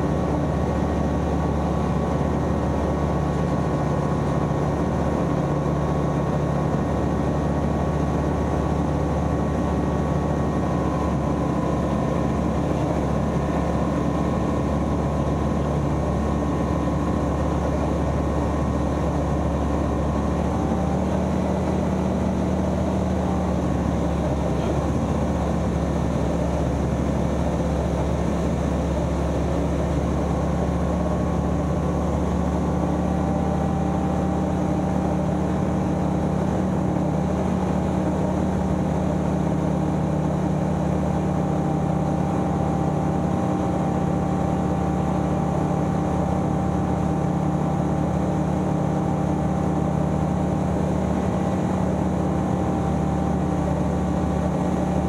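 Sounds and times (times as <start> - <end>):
aeroplane engine and propeller drone: 0.0 - 55.0.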